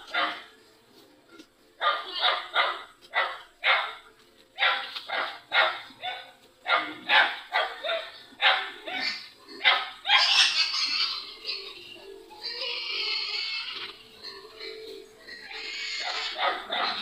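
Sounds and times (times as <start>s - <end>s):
dog barking: 0.1s - 0.5s, 1.8s - 4.0s, 4.6s - 10.5s, 16.0s - 17.0s.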